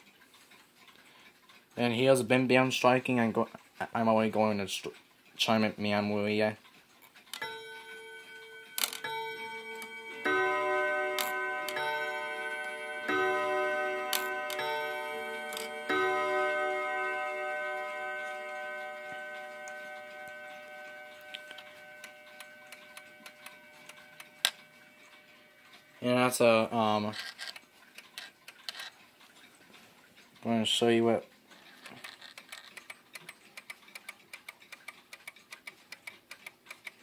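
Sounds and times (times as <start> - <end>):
clock ticking: 0.0 - 37.0
clock chime rods ringing: 7.4 - 27.1.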